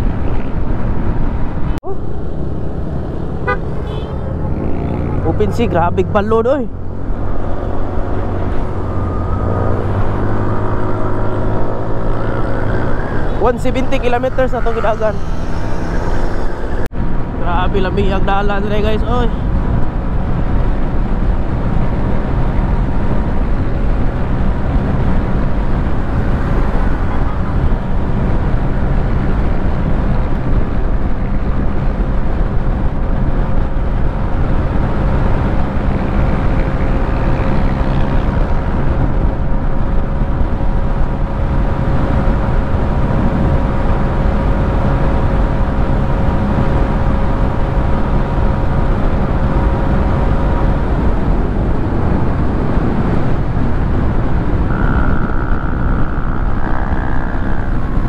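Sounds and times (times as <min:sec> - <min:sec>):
road noise: 0:00.0 - 0:58.0
scooter engine drone: 0:00.0 - 0:58.0
wind rush: 0:00.0 - 0:58.0.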